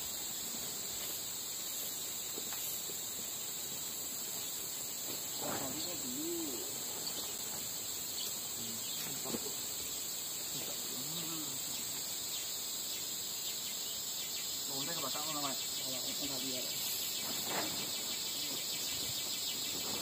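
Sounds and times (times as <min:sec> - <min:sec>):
insects shrilling: 0:00.0 - 0:20.0
faint voices: 0:05.4 - 0:07.1, 0:08.5 - 0:09.7, 0:10.5 - 0:11.9.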